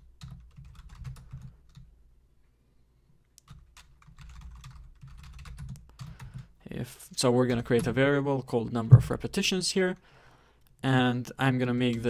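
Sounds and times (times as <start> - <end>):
keyboard typing: 0.2 - 1.9, 3.4 - 6.5.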